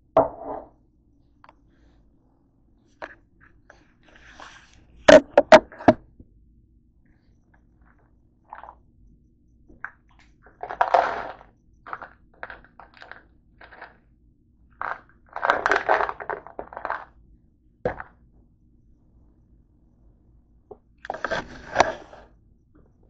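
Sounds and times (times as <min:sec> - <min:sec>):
bottle knocking on a counter: 0:00.2 - 0:00.7
tablets being chewed: 0:07.6 - 0:08.8, 0:09.8 - 0:14.0, 0:14.7 - 0:17.2.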